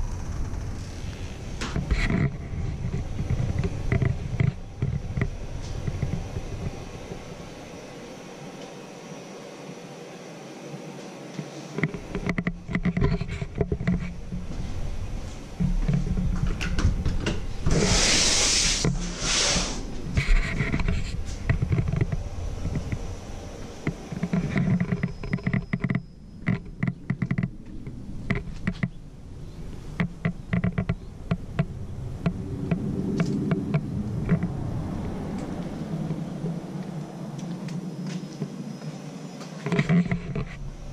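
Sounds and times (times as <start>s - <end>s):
low rumble: 0.0s - 8.6s, 12.0s - 38.6s, 40.0s - 40.9s
loud rushing noise: 17.5s - 20.5s
footsteps: 36.8s - 40.6s.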